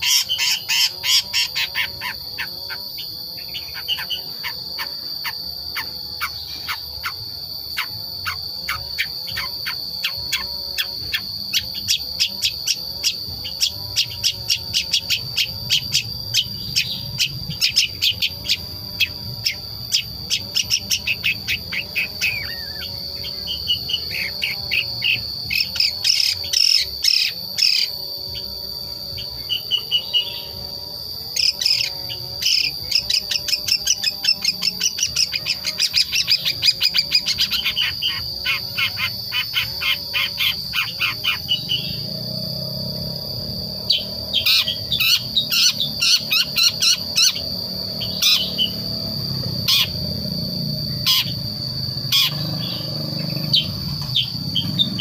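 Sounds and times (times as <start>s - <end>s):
bird chattering call: 0.0s - 28.5s, 43.9s - 48.9s, 49.6s - 50.2s, 50.9s - 55.0s
high insect whine: 0.0s - 55.0s.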